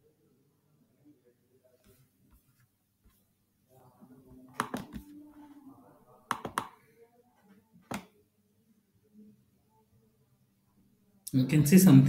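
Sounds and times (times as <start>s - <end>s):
faint indistinct speech: 3.6s - 11.3s
computer mouse clicks: 6.3s - 6.7s.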